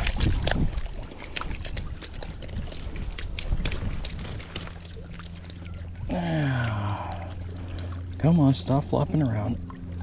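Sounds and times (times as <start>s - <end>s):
wind rumbling on microphone: 0.0s - 6.2s
fish splashing and flopping: 0.0s - 8.2s.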